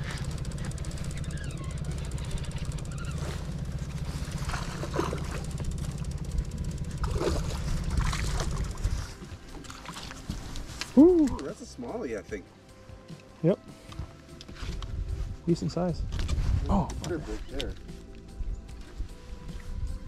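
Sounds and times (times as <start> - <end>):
fishing reel ticking whir: 0.0 - 9.9
low rumble: 0.0 - 11.4.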